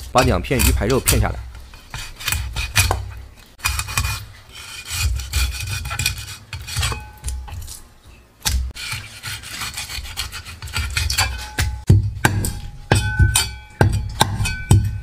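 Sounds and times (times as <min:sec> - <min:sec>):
cleaver rasping along fish bones: 0:00.0 - 0:07.8, 0:08.5 - 0:12.6.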